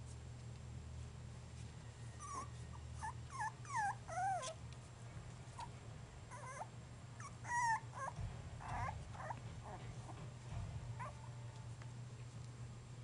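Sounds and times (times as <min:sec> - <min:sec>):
puppies whimpering: 0:02.2 - 0:04.6, 0:06.3 - 0:10.2.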